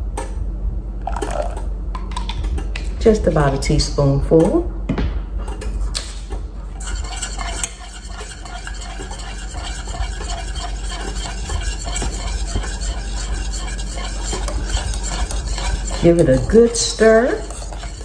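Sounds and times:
whisk scraping a metal saucepan: 6.0 - 18.0.

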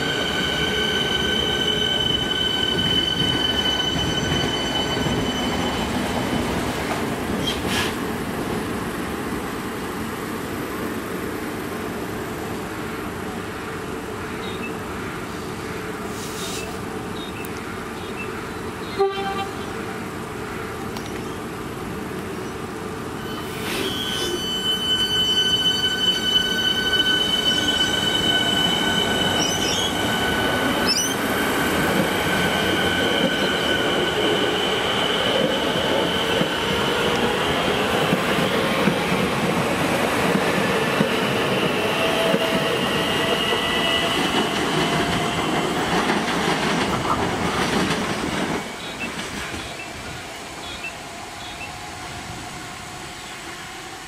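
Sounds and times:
high-pitched wheel squeal: 0.0 - 6.1, 23.2 - 37.1
train wheels rumbling on rails: 0.0 - 18.0, 18.6 - 54.0.

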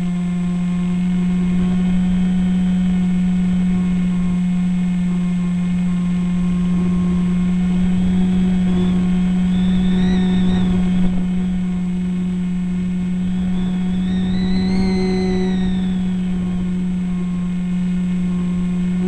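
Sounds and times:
electric motor whine: 0.0 - 19.0
model plane motor humming: 0.0 - 19.0
wind rumble on microphone: 0.0 - 19.0.

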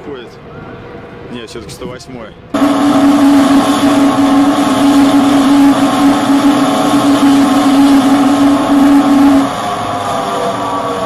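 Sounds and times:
wind rush on microphone: 0.6 - 11.0
electric motor whining: 2.6 - 11.0.

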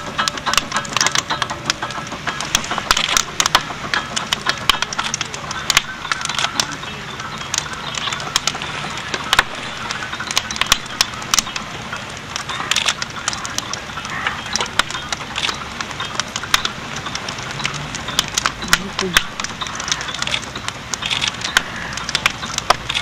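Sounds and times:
fire crackling and popping: 0.0 - 23.0.

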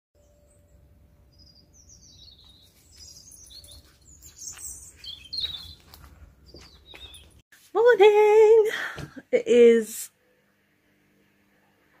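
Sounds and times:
small birds chirping: 0.2 - 7.4.

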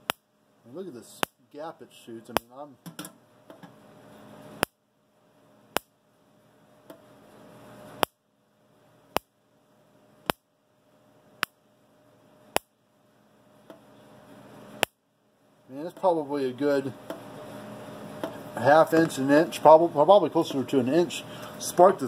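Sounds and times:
electric fence spark snaps: 8.0 - 8.2, 10.2 - 10.5, 14.8 - 15.0.

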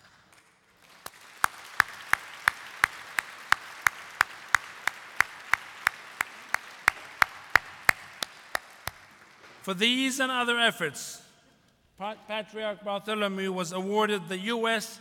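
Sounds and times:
audience applauding: 0.0 - 9.7
man clapping near microphone: 0.0 - 9.7.

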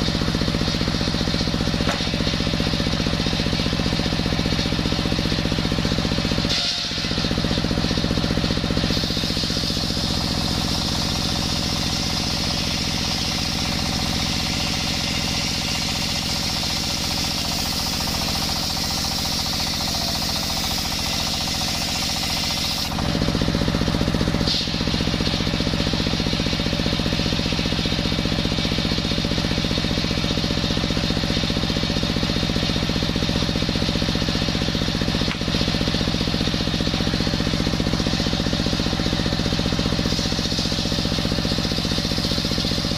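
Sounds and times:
diesel engine running: 0.0 - 42.9
circular saw cutting wood: 6.2 - 25.5.

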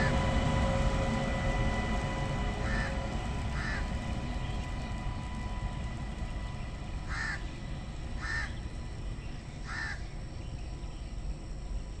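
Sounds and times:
low steady rumble: 0.0 - 12.0
crow cawing: 2.6 - 2.9, 3.6 - 3.8, 7.1 - 7.4, 8.2 - 8.5, 9.7 - 10.0.

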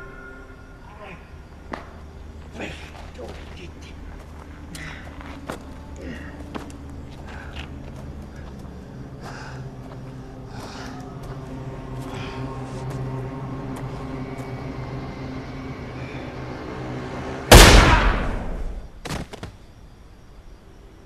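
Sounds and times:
low steady drone: 0.0 - 18.9
pistol shot: 17.5 - 18.8.

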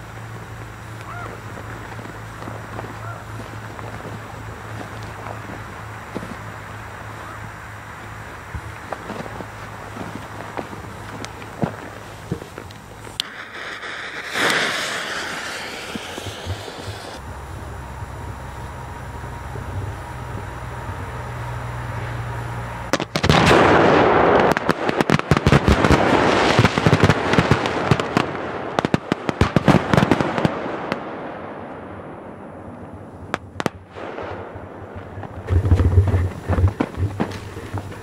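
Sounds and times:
firecrackers cracking and banging: 0.0 - 7.2, 8.0 - 17.2, 22.9 - 31.2, 33.3 - 38.0
low rumble: 0.0 - 24.6, 31.4 - 38.0.

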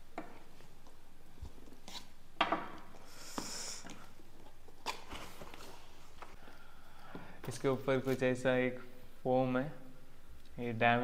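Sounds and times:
tape scraping and rustling: 1.4 - 2.2, 3.3 - 6.4.

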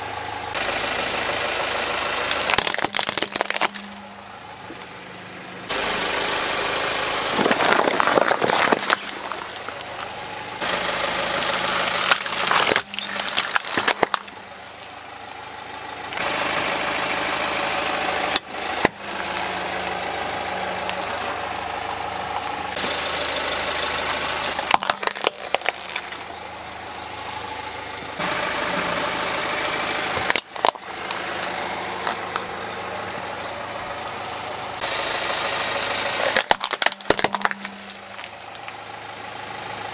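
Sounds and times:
car engine idling: 0.0 - 39.9
plastic toys cracking and crunching: 2.3 - 4.1, 7.3 - 14.5, 24.4 - 26.3, 29.9 - 32.5, 36.2 - 38.8.

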